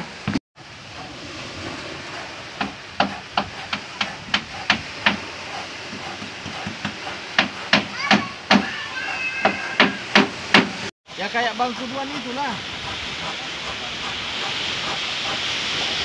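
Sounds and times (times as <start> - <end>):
hammer blows on wood: 5.9 - 10.9.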